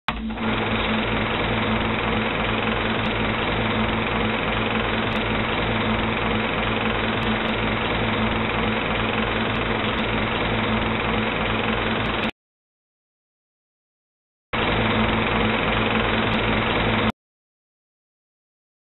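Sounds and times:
movie projector clattering: 0.1 - 12.3, 14.6 - 17.1.

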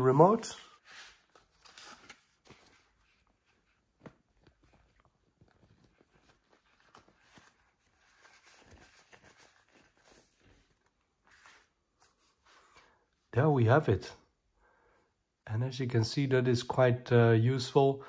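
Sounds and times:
tissue paper rustling: 0.0 - 13.0.

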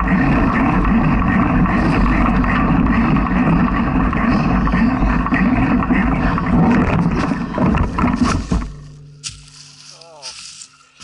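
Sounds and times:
bike rattling over dirt trail: 0.0 - 9.7
sharp knocks: 5.0 - 9.4.

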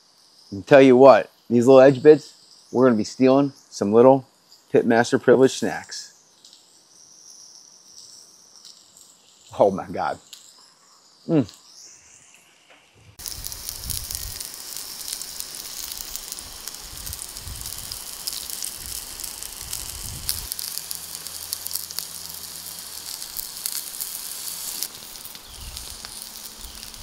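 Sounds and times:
steaks sizzling on a grill: 5.4 - 27.0
fat crackling: 13.2 - 27.0.

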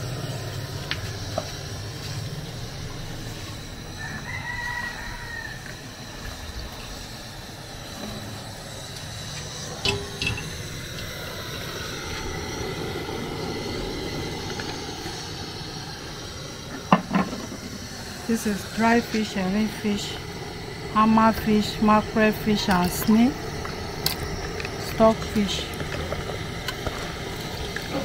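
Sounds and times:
rooster crowing: 3.8 - 6.4
metal pot clanking: 9.8 - 10.7
liquid pouring into pot: 22.8 - 28.0.

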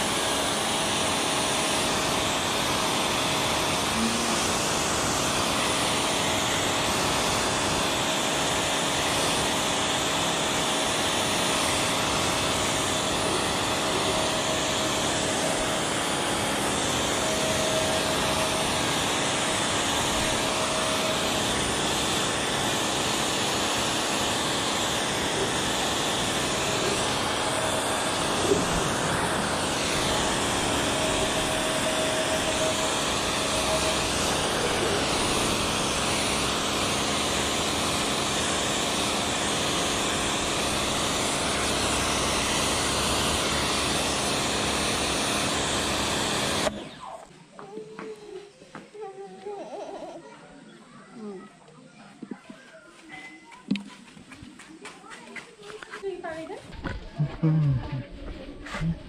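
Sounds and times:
water jet hissing: 0.0 - 46.8
pressure washer pump humming: 0.0 - 50.2.

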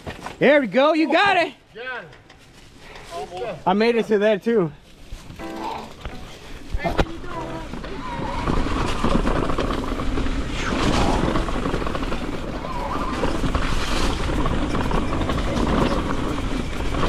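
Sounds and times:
bike rattling over rough trail: 4.9 - 17.0
wind rumbling on microphone: 6.0 - 17.0.

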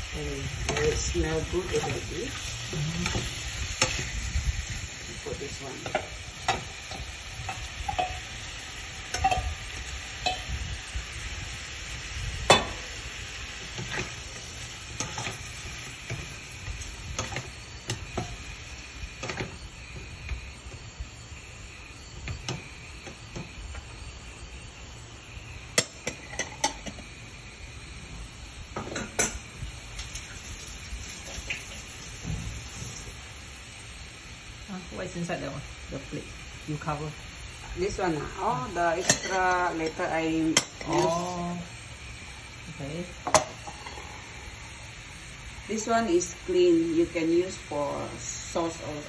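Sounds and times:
meat and onion sizzling: 0.0 - 49.0.

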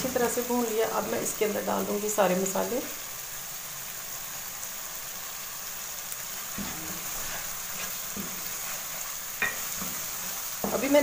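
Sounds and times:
onion paste sizzling in hot oil: 0.0 - 11.0
spatula scraping a pan: 6.4 - 11.0.

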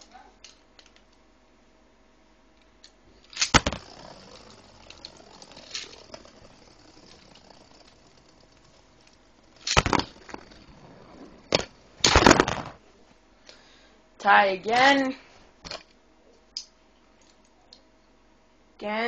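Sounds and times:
spinning tops clattering: 3.2 - 12.8
tops whirring on plastic: 3.3 - 12.8.

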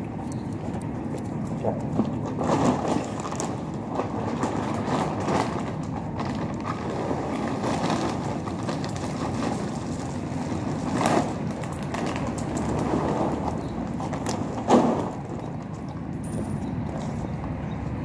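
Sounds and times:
dogs crunching food: 0.0 - 18.0
plastic bag rustling: 2.2 - 15.4.

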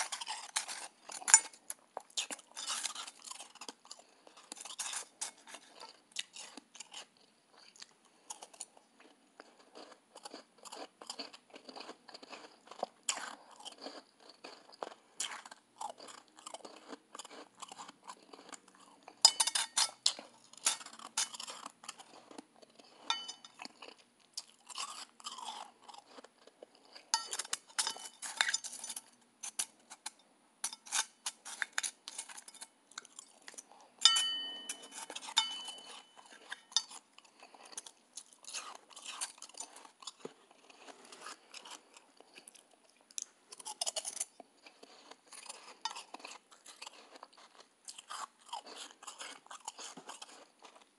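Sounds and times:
chewing crunchy shaved ice: 0.0 - 50.9
spoon knocking metal bowl: 34.1 - 35.8.

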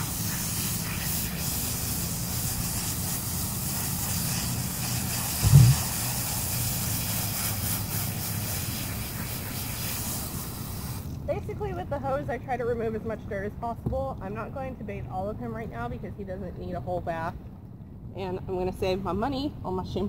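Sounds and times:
garden hose spraying water: 0.0 - 11.6
low thump: 5.4 - 5.8.

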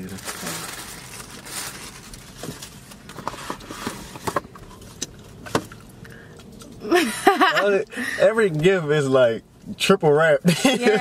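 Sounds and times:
tissue paper rustling: 0.0 - 2.8.

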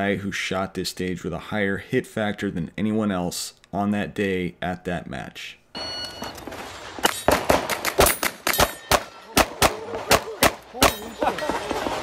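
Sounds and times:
electronic start beep: 5.8 - 6.4
rapid pistol fire: 7.3 - 10.6
steel plates ringing: 8.5 - 9.3.

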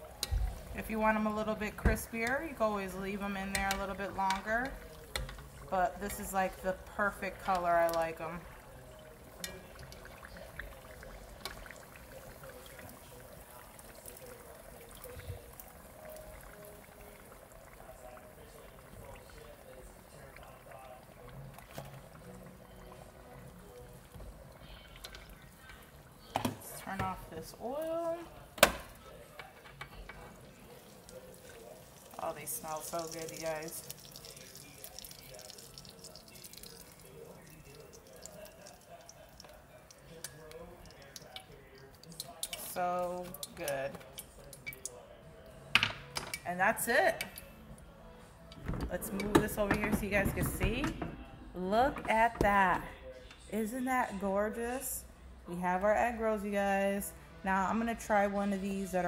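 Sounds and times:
deep-frying oil sizzling: 1.6 - 23.9, 30.5 - 45.0.

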